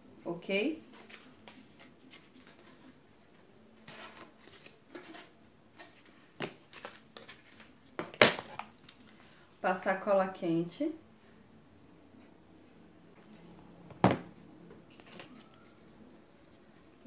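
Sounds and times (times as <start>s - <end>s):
cardboard rustling: 0.8s - 3.1s, 3.8s - 8.6s, 14.8s - 17.0s.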